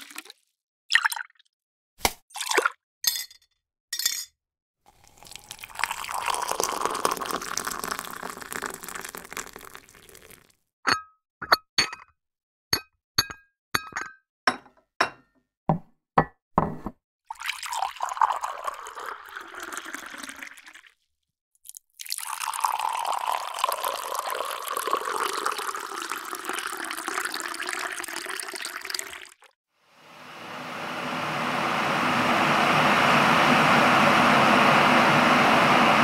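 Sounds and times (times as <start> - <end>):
tea pouring into a cup: 0.0 - 1.3, 4.9 - 10.5, 17.3 - 21.0, 21.6 - 29.5.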